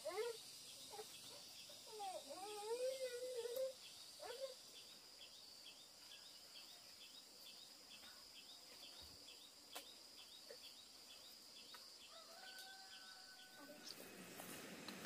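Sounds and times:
high-pitched insect drone: 0.0s - 4.8s.

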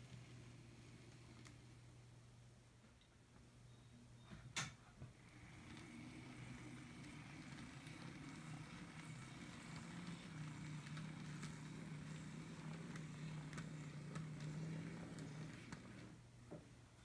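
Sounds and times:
model train motor humming: 5.2s - 16.2s.

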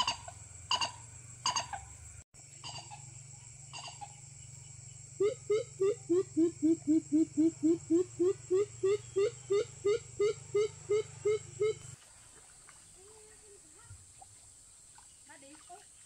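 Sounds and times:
animal calling: 0.0s - 2.0s, 2.6s - 4.2s, 5.2s - 12.0s
steady low hum: 0.3s - 12.0s.

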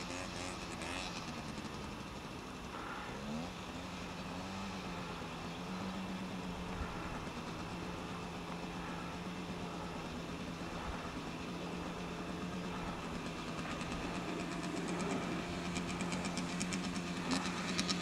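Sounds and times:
motorcycle engine running: 0.0s - 18.0s
rapid ticking: 7.1s - 18.0s.

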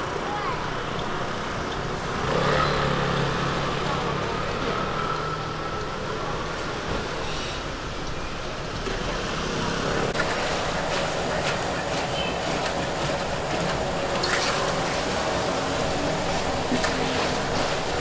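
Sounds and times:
street food stall ambience: 0.0s - 18.0s.

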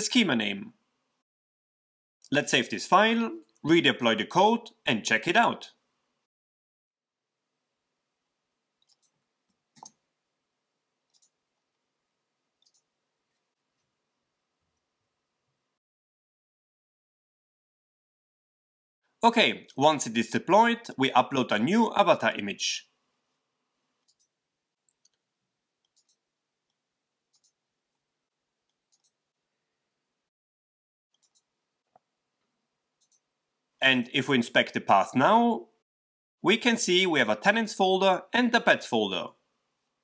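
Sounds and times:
computer mouse clicking: 8.8s - 10.0s, 11.1s - 11.4s, 12.6s - 13.9s, 24.0s - 27.6s, 28.6s - 29.2s, 31.2s - 32.1s, 33.0s - 33.3s.

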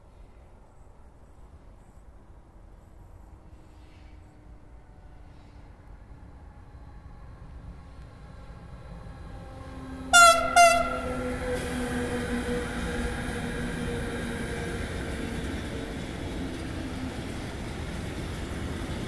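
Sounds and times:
freight train rolling past: 2.6s - 19.0s
locomotive horn blasts: 9.6s - 11.9s.

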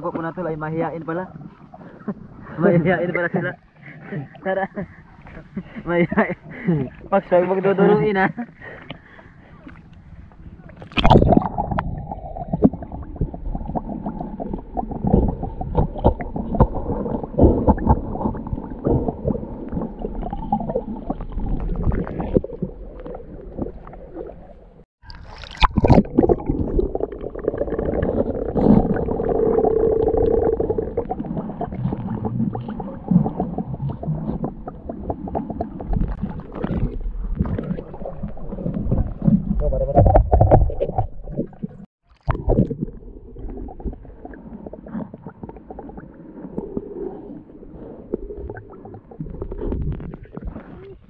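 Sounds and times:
muffled water gurgling and sloshing: 0.0s - 51.0s
sharp water splash: 25.0s - 27.0s.

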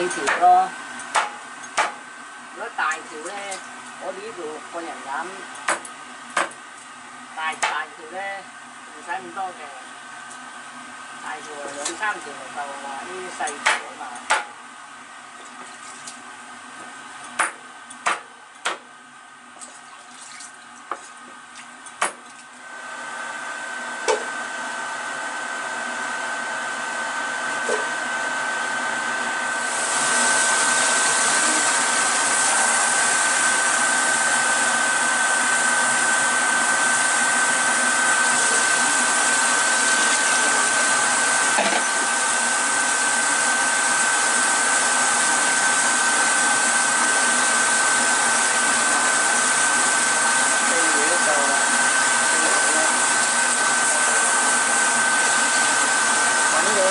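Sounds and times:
cleaver chopping corn cobs: 1.1s - 2.0s.

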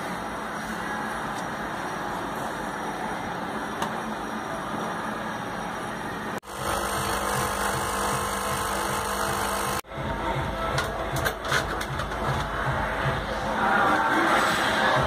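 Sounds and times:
noisy background: 0.0s - 15.0s
electrical relay humming: 1.3s - 9.8s.

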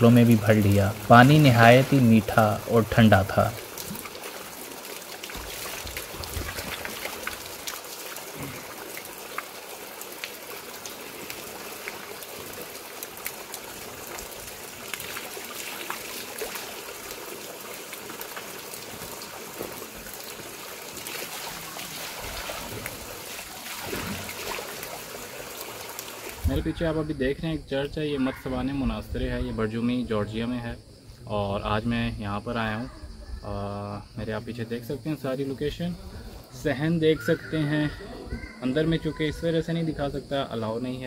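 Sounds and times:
bottle being filled: 0.0s - 26.5s
water splashing into stone trough: 0.0s - 26.5s.

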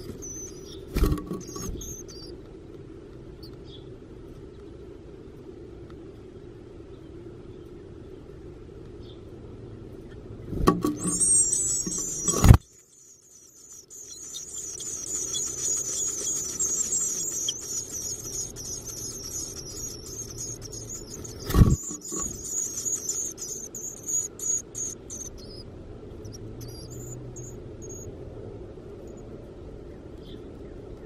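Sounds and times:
nestlings begging calls: 0.0s - 2.4s, 10.0s - 28.1s
loud thumps: 10.5s - 12.6s.

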